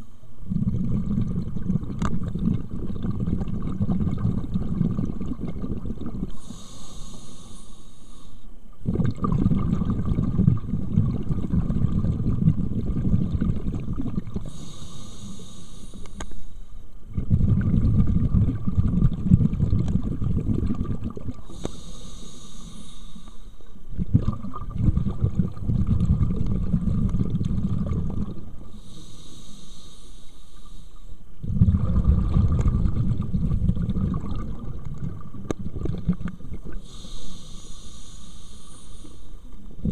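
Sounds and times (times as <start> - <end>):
exhaled air bubbling: 0.0 - 7.6, 8.2 - 29.6, 30.5 - 39.9
regulator hiss on inhale: 6.2 - 8.7, 14.3 - 16.9, 21.3 - 23.9, 28.6 - 31.5, 36.6 - 39.9.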